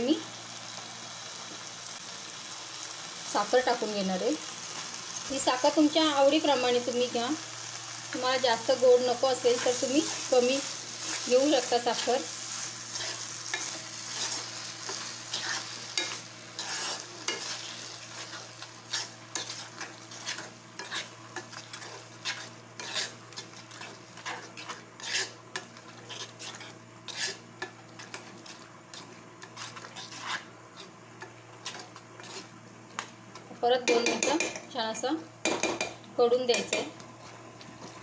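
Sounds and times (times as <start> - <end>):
soft sizzle: 0.0 - 38.0
spoon stirring and scraping in pan: 8.5 - 34.7, 35.4 - 38.0.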